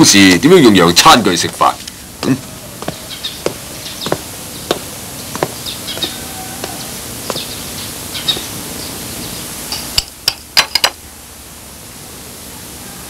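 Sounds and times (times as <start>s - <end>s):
birds chirping: 0.0s - 9.9s
steady hiss: 0.0s - 13.0s.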